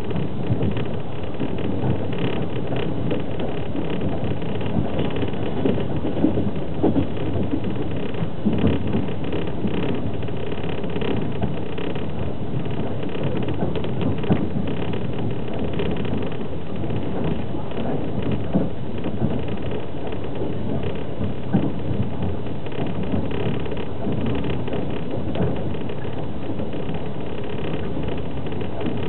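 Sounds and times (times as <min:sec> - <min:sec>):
train wheels rumbling on rails: 0:00.0 - 0:29.0.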